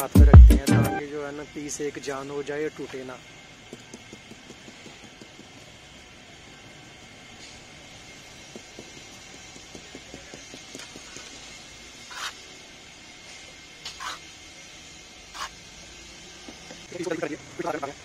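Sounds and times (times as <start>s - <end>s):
trowel gritty ticks: 3.7s - 5.9s, 8.3s - 12.4s, 13.8s - 14.3s, 15.3s - 15.6s
trowel scraping wet concrete: 12.1s - 12.5s, 13.8s - 14.3s, 15.3s - 15.6s.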